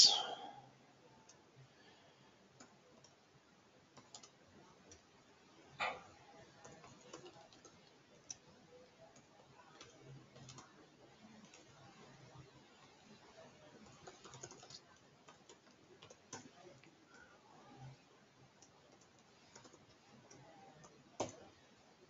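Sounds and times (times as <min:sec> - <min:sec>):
typing on keyboard: 0:03.9 - 0:05.1, 0:06.4 - 0:12.4, 0:13.7 - 0:17.3, 0:18.6 - 0:21.5.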